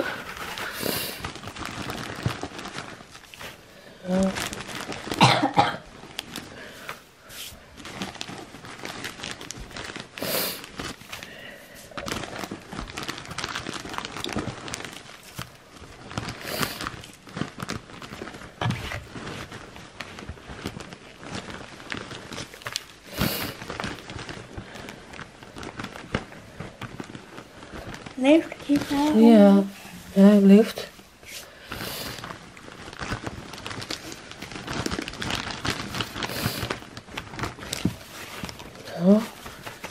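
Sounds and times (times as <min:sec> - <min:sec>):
wood shavings rustling and crunching: 0:00.0 - 0:05.3, 0:06.0 - 0:39.9.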